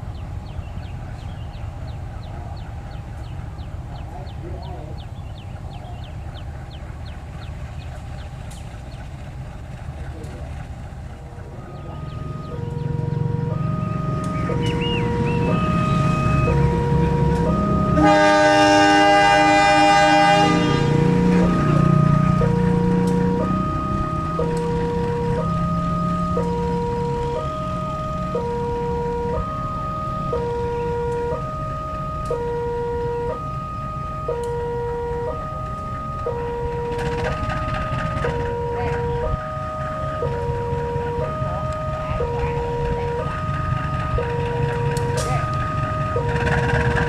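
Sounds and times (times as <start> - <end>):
diesel engine rumble: 0.0 - 47.0
two-tone electronic alarm: 11.5 - 47.0
locomotive horn chord: 11.6 - 47.0.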